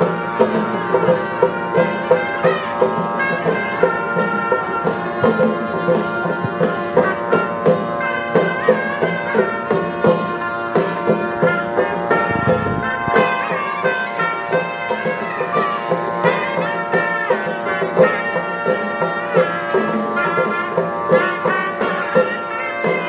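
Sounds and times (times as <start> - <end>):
drum beating: 0.0 - 23.0
sustained melody: 0.0 - 23.0
steady drone: 11.3 - 15.3.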